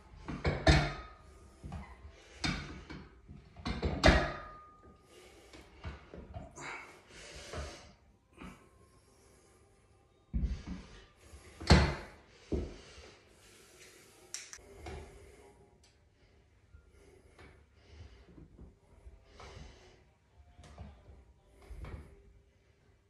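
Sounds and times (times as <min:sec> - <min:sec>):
person breathing: 0:05.0 - 0:20.2.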